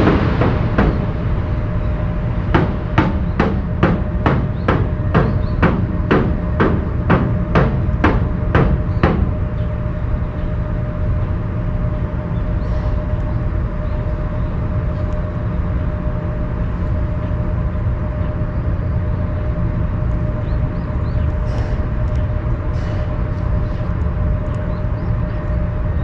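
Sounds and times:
sharp knocks: 0.0s - 1.8s, 2.4s - 9.7s
low rumble: 0.0s - 26.0s.

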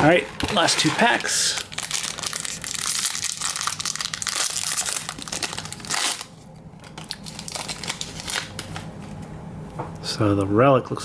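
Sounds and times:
foil pack torn open: 0.4s - 8.8s
foil wrapper crinkling: 0.4s - 8.9s.

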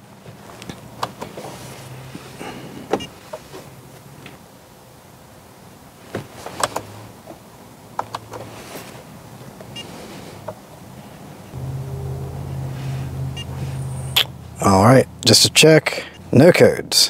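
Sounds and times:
faint low hum: 11.6s - 16.2s.

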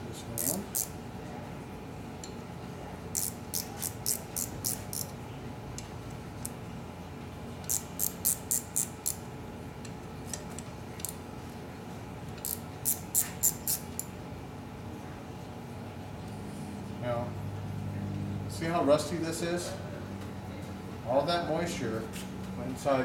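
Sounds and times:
hand ratchet clicking: 0.4s - 0.9s, 3.1s - 5.1s, 7.6s - 9.2s, 12.4s - 14.1s.

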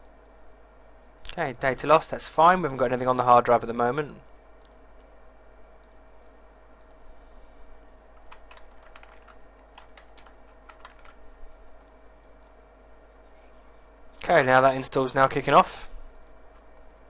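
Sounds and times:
faint steady hum: 0.0s - 17.0s
computer keyboard typing: 8.2s - 11.2s, 11.8s - 12.6s.

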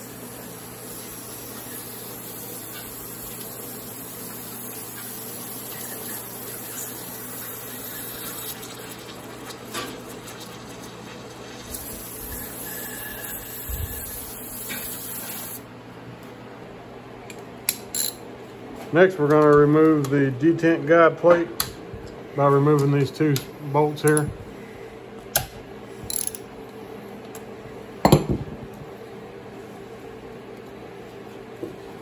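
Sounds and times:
aerosol spray hissing: 0.3s - 8.5s, 11.7s - 15.6s.

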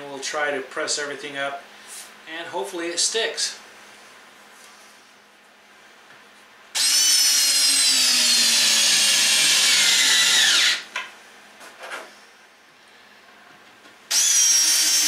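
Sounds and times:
cordless drill driving screw: 6.8s - 10.9s, 14.1s - 15.0s.

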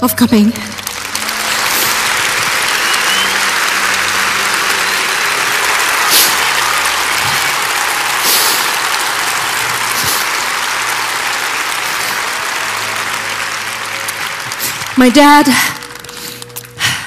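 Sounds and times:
large audience applauding: 0.0s - 17.0s
audience cheering: 0.8s - 15.5s.

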